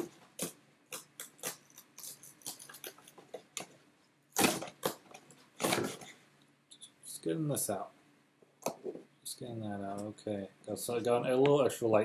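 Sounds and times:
cardboard cracking and crinkling: 1.2s - 6.2s.

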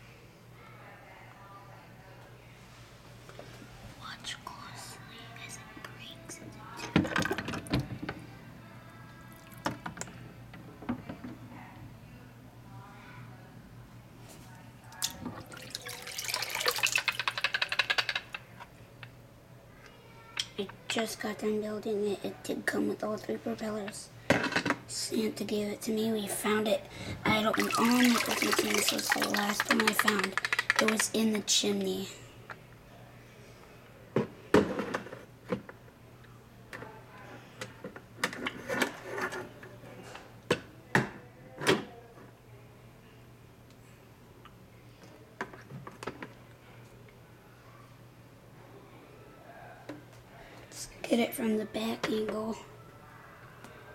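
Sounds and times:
water dripping: 15.0s - 17.8s, 27.3s - 31.1s
water splashing in a sink: 15.0s - 18.0s, 27.2s - 31.2s
plastic model parts clicking and rattling: 17.1s - 18.4s, 29.6s - 31.2s.

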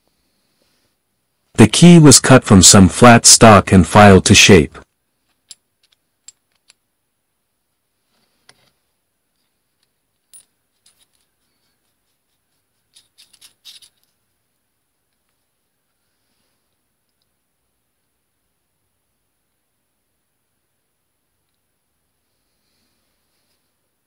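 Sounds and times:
metallic clicks and clinks: 5.3s - 6.8s, 9.3s - 12.0s, 12.9s - 14.2s.

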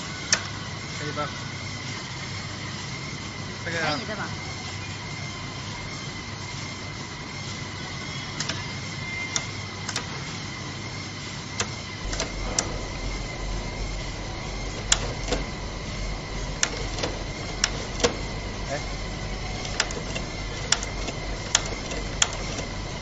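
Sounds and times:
sewing machine motor whine: 0.0s - 23.0s
sharp clicks: 11.6s - 23.0s
low drone: 12.0s - 23.0s.

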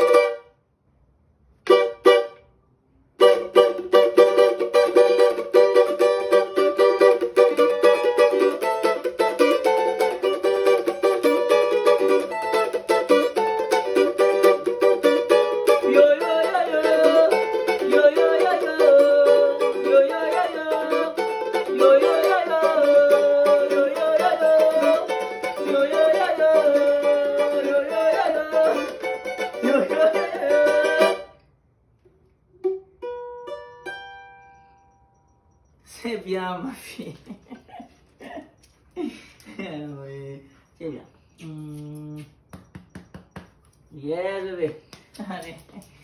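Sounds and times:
small guitar strummed fast: 3.2s - 31.3s.

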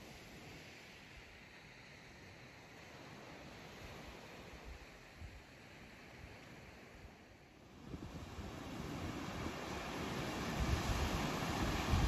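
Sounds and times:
faint outdoor hiss: 0.0s - 12.0s
wind rumbling on microphone: 3.7s - 12.0s.

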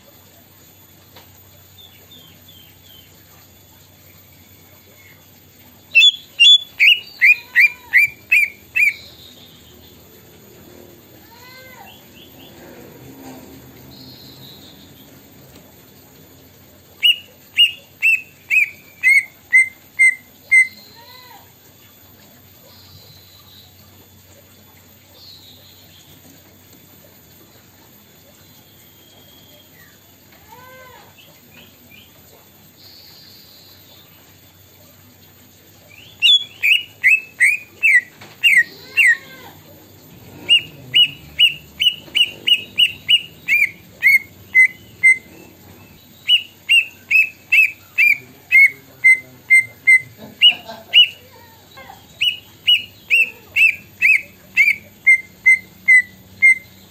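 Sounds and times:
bird whistling descending notes: 5.9s - 9.1s, 36.1s - 39.2s, 40.4s - 51.2s, 52.2s - 56.9s.

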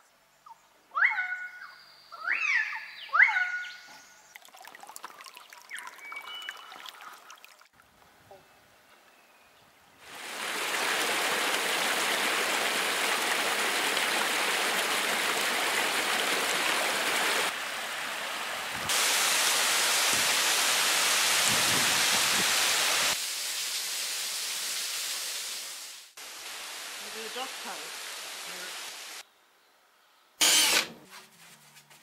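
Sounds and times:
waterfall rushing: 10.0s - 23.2s.

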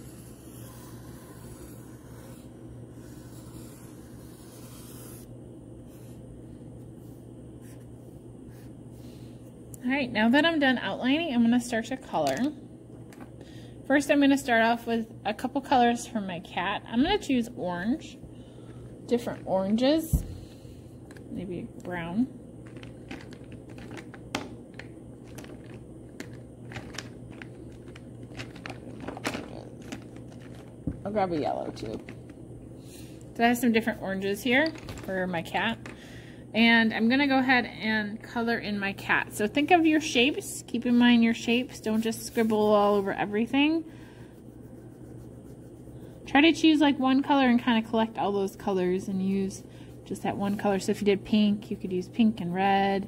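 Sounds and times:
marker scratching on paper: 0.0s - 5.3s, 41.0s - 46.8s
steady low hum: 0.0s - 53.0s
coloring supplies clattering: 22.6s - 32.3s, 34.6s - 36.0s.

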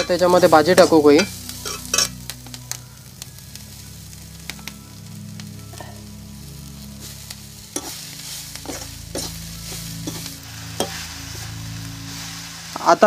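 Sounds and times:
greens sizzling in hot oil: 0.0s - 13.0s
metal ladle scraping pan: 8.6s - 11.5s.

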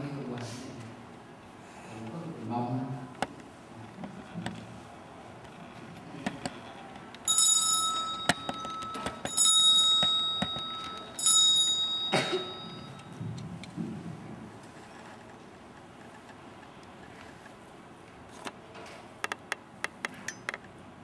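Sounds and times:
small bell ringing: 7.3s - 13.2s.

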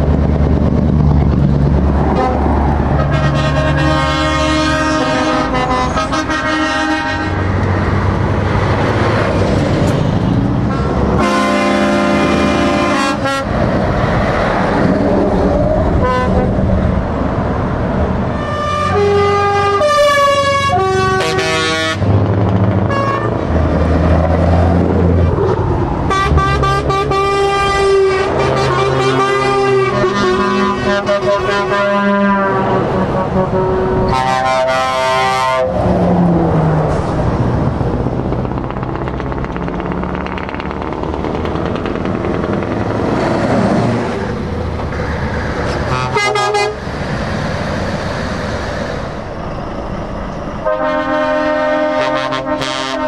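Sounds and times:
trucks passing with diesel engines: 0.0s - 53.0s
multi-note truck air horns: 2.0s - 7.8s, 10.6s - 13.7s, 15.9s - 16.7s, 18.3s - 23.5s, 26.0s - 35.9s, 45.7s - 46.9s, 50.6s - 53.0s.

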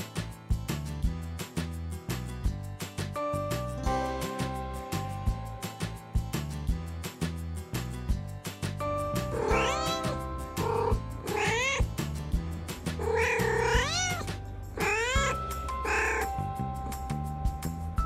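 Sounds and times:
background music with steady beat: 0.0s - 18.0s
cat meowing: 9.3s - 11.9s, 12.9s - 16.4s.

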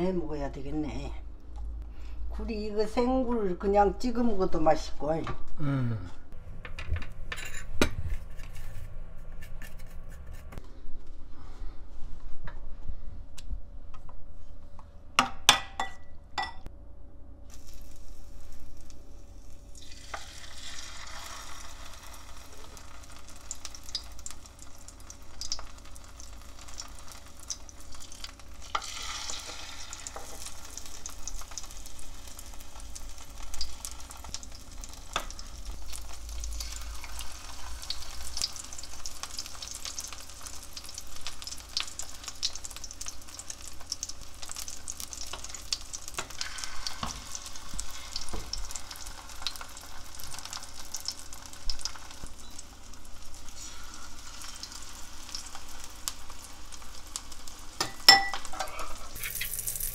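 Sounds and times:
oysters sizzling in frying pan: 17.5s - 59.9s.

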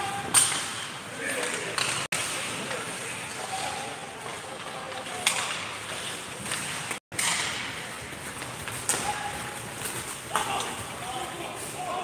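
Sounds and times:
hockey puck crack: 4.2s - 11.7s.

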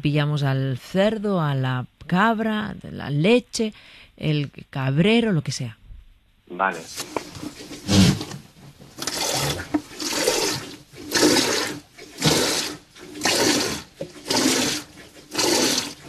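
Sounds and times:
milk squirting into a bucket: 9.0s - 16.0s.

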